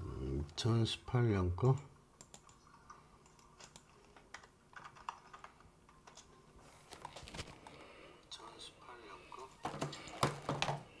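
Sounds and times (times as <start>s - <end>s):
computer keyboard clicks: 1.7s - 2.6s, 3.2s - 6.3s.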